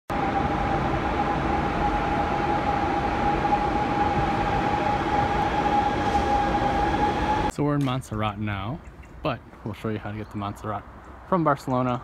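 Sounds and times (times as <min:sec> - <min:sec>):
train high whine: 0:00.1 - 0:07.6
train rumbling: 0:00.1 - 0:08.7.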